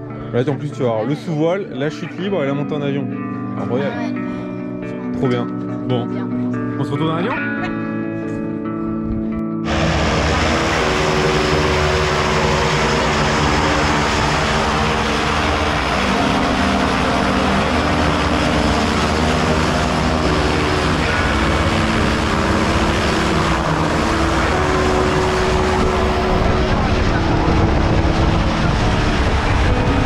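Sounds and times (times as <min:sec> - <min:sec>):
propeller plane idling: 0:09.6 - 0:30.0.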